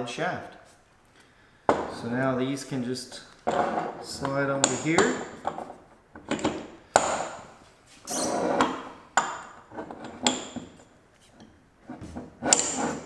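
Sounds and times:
metal shaft scraping slide: 8.0 - 8.8, 12.4 - 13.0.

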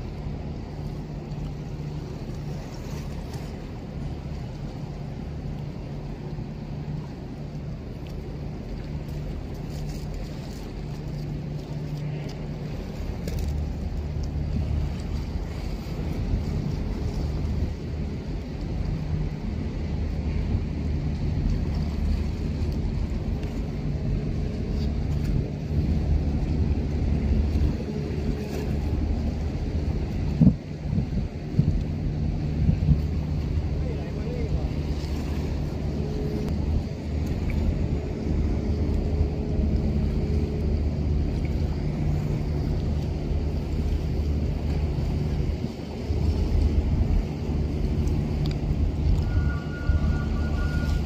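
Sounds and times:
low hum: 0.0 - 51.0
ship diesel engine rumble: 0.0 - 51.0.

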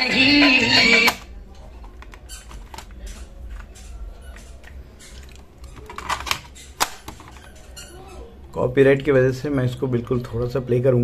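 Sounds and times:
plastic clicks and rattles: 1.8 - 3.8, 4.7 - 7.7.

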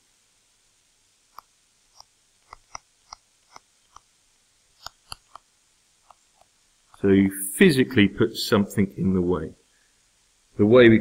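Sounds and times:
stylus tapping on tablet screen: 4.8 - 5.4.

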